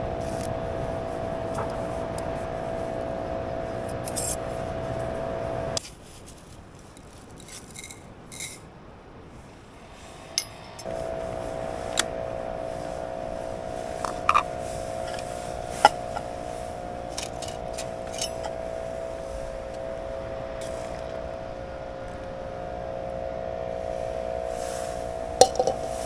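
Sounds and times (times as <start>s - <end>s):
gas stove burner humming: 0.0s - 5.8s, 10.0s - 26.0s
metal pot and cup clinking: 25.4s - 25.8s.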